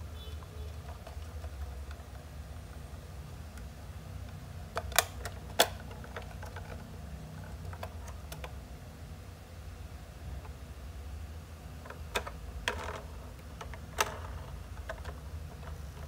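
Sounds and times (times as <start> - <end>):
low steady hum: 0.0 - 16.0
plastic toy clicks and knocks: 4.7 - 8.6, 11.8 - 16.0.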